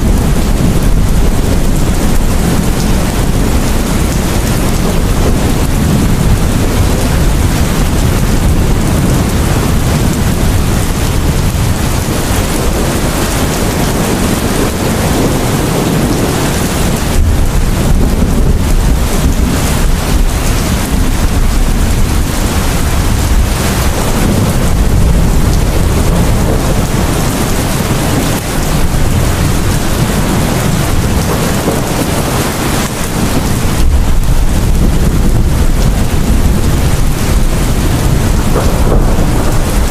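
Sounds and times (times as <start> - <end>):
heavy rain pouring: 0.0 - 39.9
low rolling thunder: 0.0 - 39.9.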